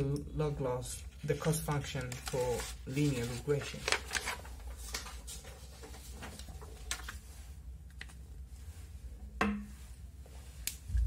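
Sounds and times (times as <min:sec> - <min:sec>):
low steady hum: 0:00.0 - 0:11.0
paper rustling on wooden table: 0:01.4 - 0:07.5.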